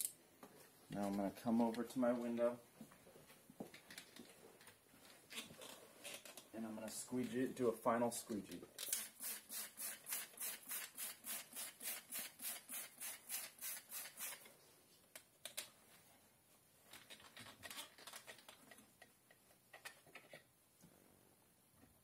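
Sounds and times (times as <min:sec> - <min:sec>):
spray bottle squirting: 0:08.8 - 0:14.4.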